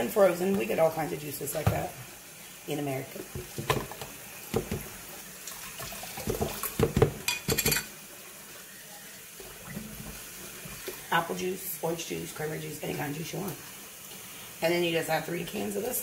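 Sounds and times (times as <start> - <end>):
tap water running into can: 0.3 - 8.5, 9.2 - 11.1.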